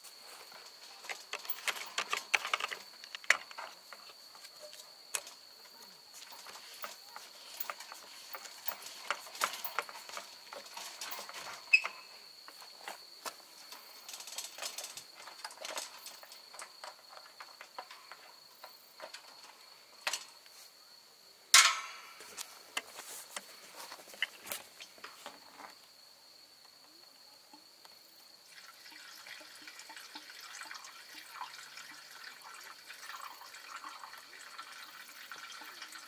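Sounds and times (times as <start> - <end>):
cricket trill: 0.0 - 36.0
small clicks and knocks: 0.5 - 20.6.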